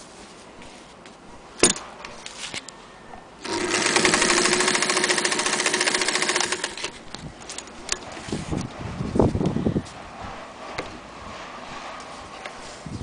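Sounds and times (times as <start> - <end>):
sewing machine stitching: 3.4 - 7.0.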